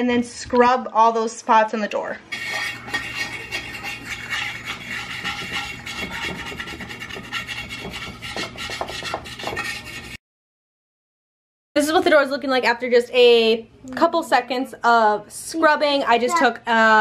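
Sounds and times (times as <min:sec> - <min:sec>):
tablet scrubbing against glass: 0:02.3 - 0:10.2.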